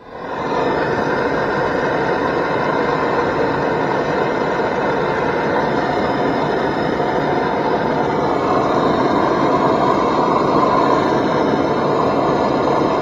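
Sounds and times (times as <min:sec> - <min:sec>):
blowtorch flame hissing: 0:00.0 - 0:13.0.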